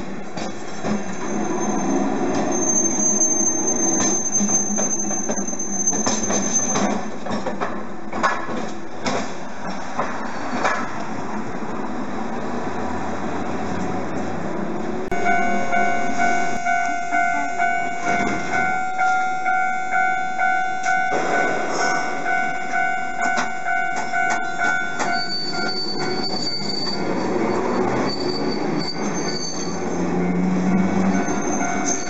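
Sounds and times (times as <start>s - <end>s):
tram wheels squealing: 0.0s - 7.6s, 9.6s - 11.0s, 15.2s - 32.0s
tram wheels clacking over rails: 0.0s - 32.0s
level-crossing warning bell: 15.1s - 27.1s, 29.3s - 32.0s.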